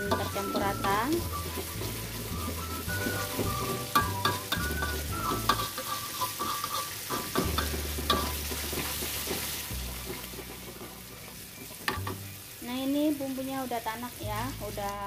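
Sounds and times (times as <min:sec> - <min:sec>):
metal spatula scraping wok: 0:00.0 - 0:12.0
spice paste sizzling in wok: 0:00.0 - 0:15.0.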